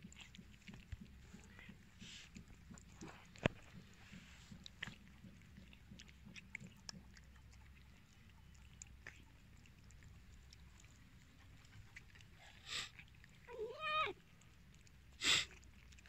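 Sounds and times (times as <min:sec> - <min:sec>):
cats chewing wet food: 0:00.0 - 0:16.0.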